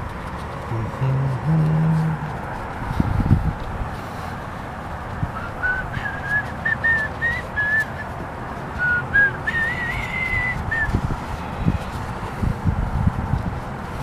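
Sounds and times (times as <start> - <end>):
person whistling a tune: 5.4 - 8.1, 8.8 - 11.0.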